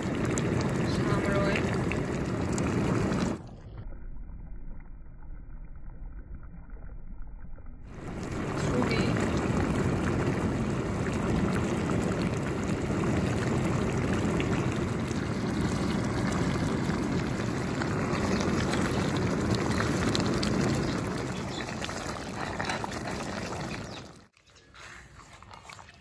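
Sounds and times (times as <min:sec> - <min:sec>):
curry bubbling in a pot: 0:00.0 - 0:03.6, 0:07.8 - 0:24.4.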